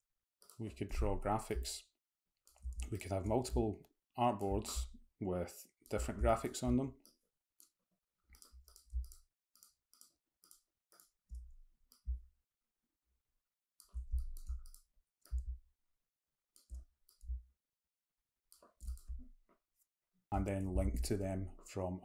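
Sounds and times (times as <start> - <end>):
computer mouse clicking: 8.3 - 11.2, 13.8 - 15.5, 18.5 - 19.2.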